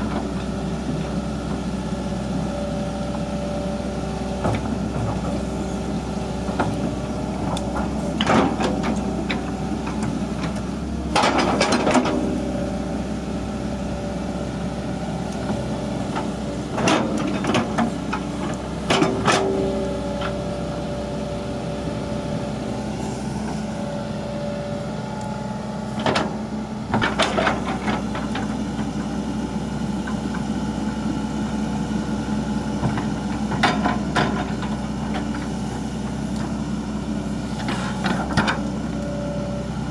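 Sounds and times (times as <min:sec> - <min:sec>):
excavator diesel engine running: 0:00.0 - 0:39.9
excavator bucket knocks and clanks: 0:04.3 - 0:05.5, 0:06.4 - 0:12.2, 0:15.5 - 0:20.4.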